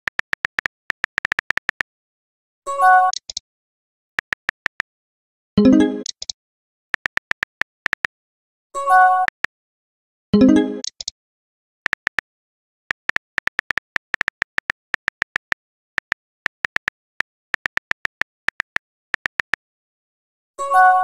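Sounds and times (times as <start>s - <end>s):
phone keyboard typing clicks: 0.0s - 1.9s, 3.1s - 3.4s, 4.2s - 4.8s, 7.0s - 8.1s, 9.2s - 9.5s, 11.9s - 12.3s, 12.9s - 19.6s.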